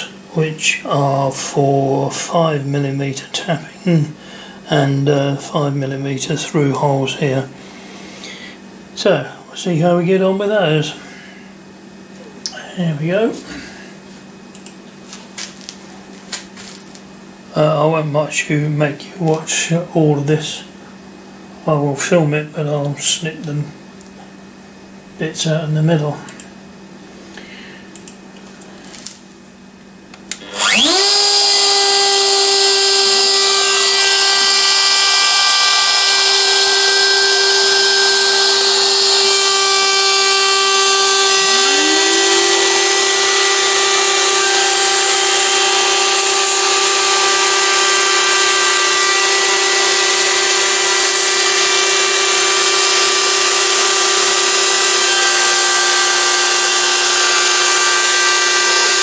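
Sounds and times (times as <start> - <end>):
router spindle whining: 30.3 - 59.0
vacuum cleaner motor whine: 30.3 - 59.0
machine milling plastic: 30.4 - 59.0.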